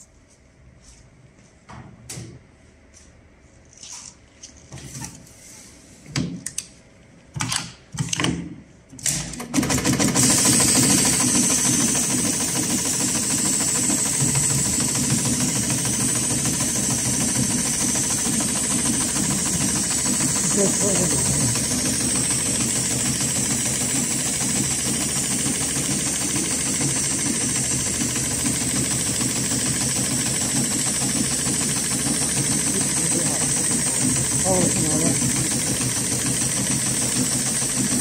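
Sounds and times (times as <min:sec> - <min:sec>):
sharp clicks and clacks: 0:09.0 - 0:38.0
sewing machine stitching with hiss: 0:09.1 - 0:38.0.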